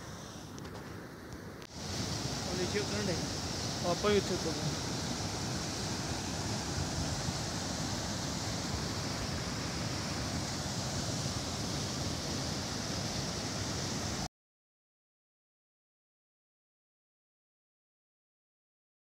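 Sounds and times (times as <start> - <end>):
stream rushing over rocks: 1.7 - 14.3.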